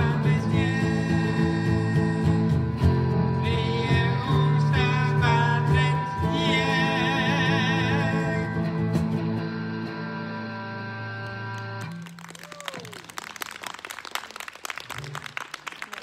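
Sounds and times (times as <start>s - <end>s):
person singing: 0.0s - 9.0s
electric guitar: 0.0s - 13.2s
keyboard playing: 1.0s - 12.2s.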